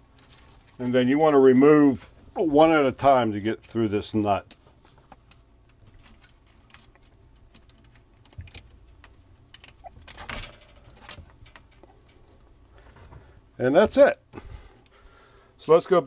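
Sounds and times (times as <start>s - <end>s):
metal supply lines clinking and rattling: 0.0s - 4.5s, 5.7s - 14.2s, 15.6s - 16.0s.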